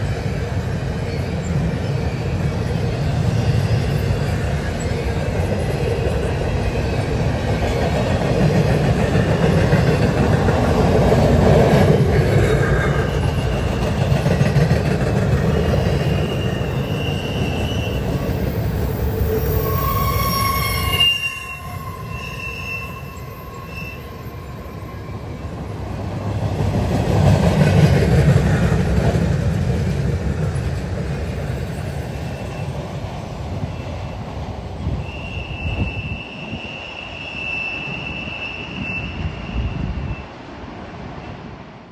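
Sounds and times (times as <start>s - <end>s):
train wheels rumbling on rail: 0.0s - 41.9s
high wheel squeals: 12.6s - 14.2s, 15.3s - 25.8s, 34.9s - 40.4s.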